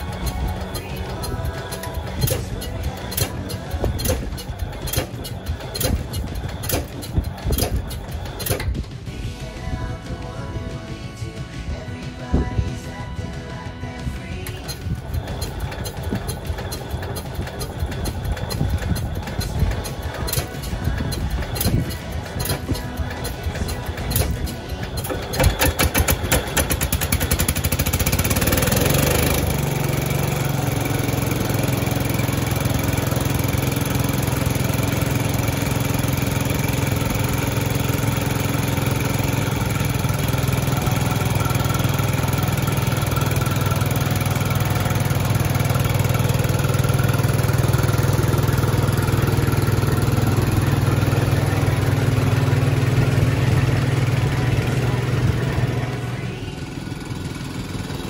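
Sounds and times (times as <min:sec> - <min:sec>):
engine starter cranking: 0:00.0 - 0:09.0, 0:14.3 - 0:58.0
engine running steadily: 0:00.0 - 0:58.0.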